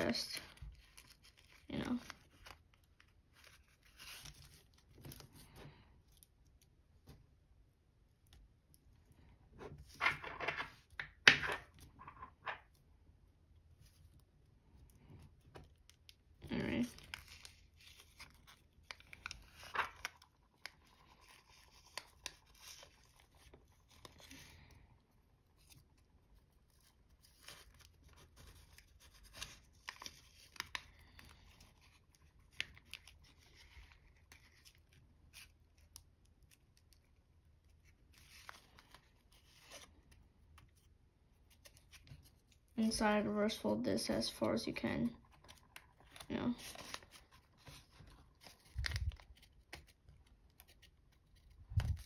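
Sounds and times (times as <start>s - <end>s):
aluminium foil crinkling: 0.1s - 5.2s, 45.2s - 52.0s.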